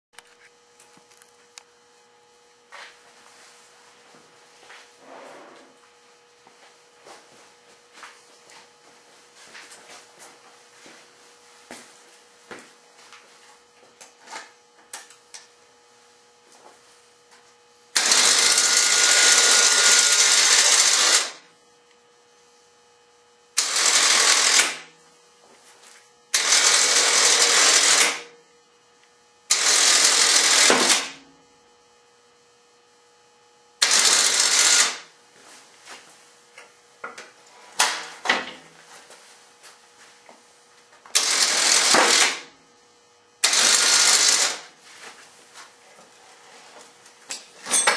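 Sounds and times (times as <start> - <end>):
electric winch running: 17.9 - 21.5, 23.5 - 25.0, 25.8 - 28.4, 29.4 - 31.4, 33.8 - 35.2, 41.1 - 42.6, 43.4 - 44.8.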